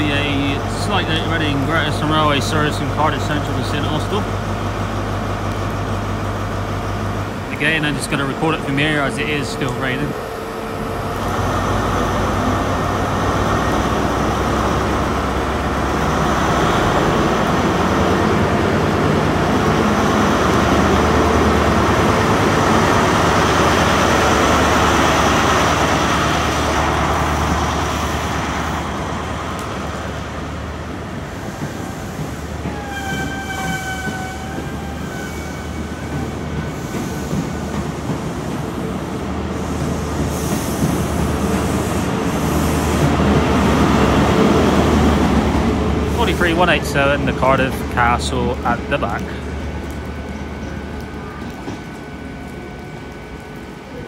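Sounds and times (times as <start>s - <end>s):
diesel train engine running: 0.0s - 54.0s
train and rail hum: 0.0s - 54.0s.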